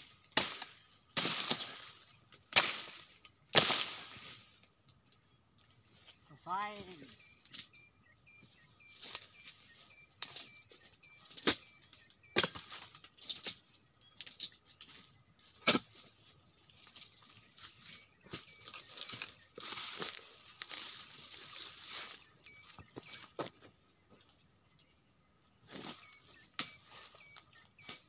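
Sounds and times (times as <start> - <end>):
high insect drone: 0.0 - 28.0
short chirps: 7.0 - 12.4.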